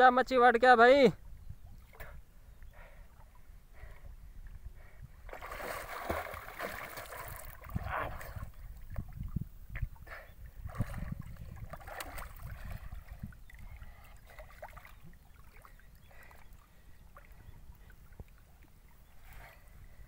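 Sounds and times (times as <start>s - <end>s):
water splashing around wading person: 5.3s - 19.5s.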